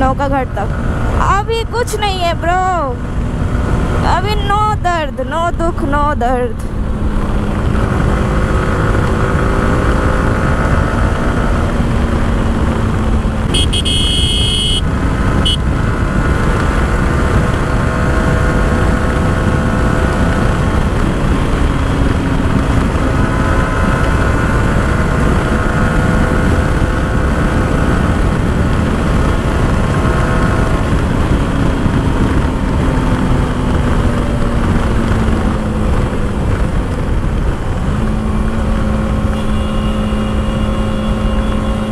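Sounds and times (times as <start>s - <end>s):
motorcycle engine cruising: 0.0s - 41.9s
wind rush on microphone: 0.0s - 41.9s
vehicle horn: 13.5s - 15.7s, 39.2s - 41.9s.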